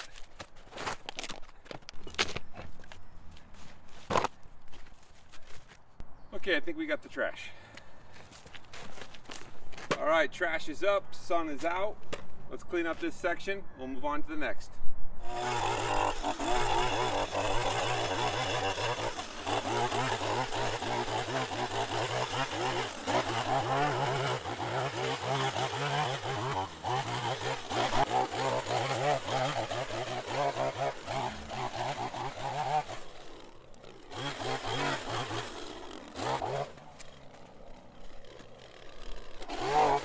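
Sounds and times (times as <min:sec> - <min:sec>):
small engine of yard tool: 0:15.2 - 0:40.0.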